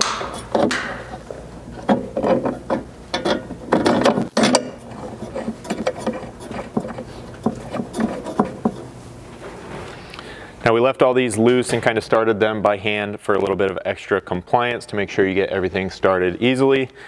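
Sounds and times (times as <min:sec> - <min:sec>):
metal hardware clicking and rattling: 0:00.0 - 0:08.8.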